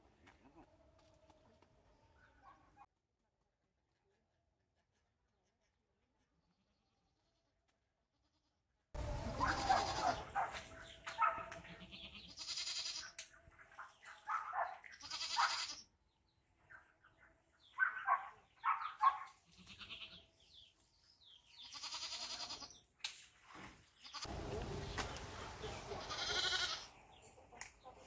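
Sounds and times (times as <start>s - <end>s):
goats bleating: 9.0s - 10.4s, 11.6s - 13.1s, 15.0s - 15.8s, 19.5s - 20.2s, 21.6s - 22.7s, 25.8s - 26.9s.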